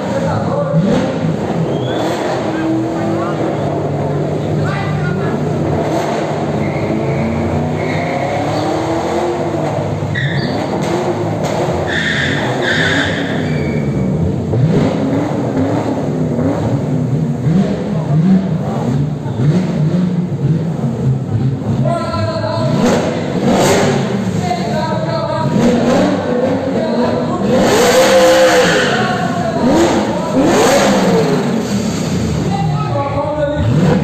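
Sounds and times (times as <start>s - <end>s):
car engine revving: 0.0s - 34.0s
tyres squealing: 6.2s - 9.3s, 10.0s - 11.0s, 11.7s - 14.1s, 25.6s - 32.7s.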